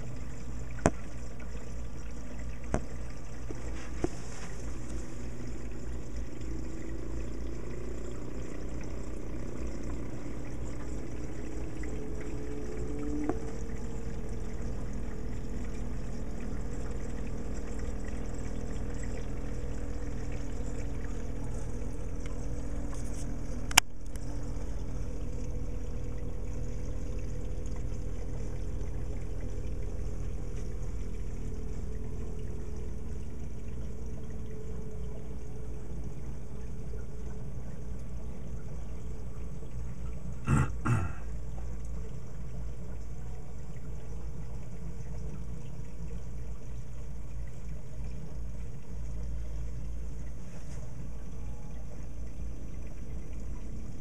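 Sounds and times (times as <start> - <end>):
pumps humming: 0.0 - 54.0
water trickling and pouring: 0.0 - 54.0.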